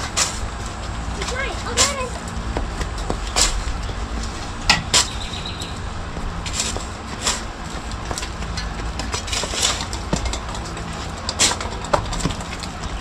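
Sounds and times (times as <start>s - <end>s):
hand tool digging soil: 0.0s - 13.0s
steady low hum: 0.0s - 13.0s.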